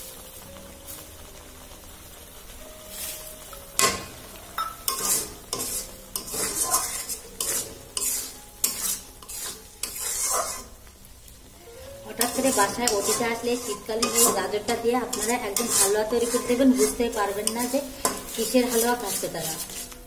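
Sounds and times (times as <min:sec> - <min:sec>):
food sizzling: 0:00.0 - 0:20.0
metal spatula scraping a pan: 0:02.9 - 0:10.8, 0:12.1 - 0:20.0.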